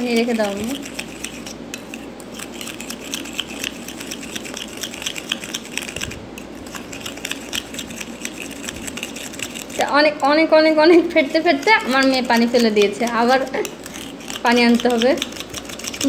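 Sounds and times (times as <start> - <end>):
spoon whisking in plastic bowl: 0.0 - 16.0.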